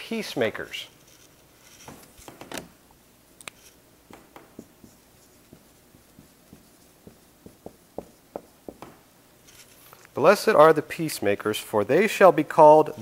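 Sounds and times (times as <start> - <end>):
marker squeaking on whiteboard: 0.9 - 2.4, 3.5 - 8.8.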